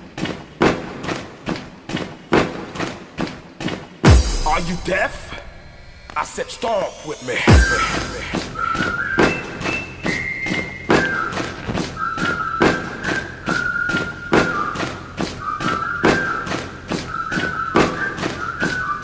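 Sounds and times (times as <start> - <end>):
dance music beat: 4.0 - 9.7
high whistle-like melody: 4.1 - 19.0.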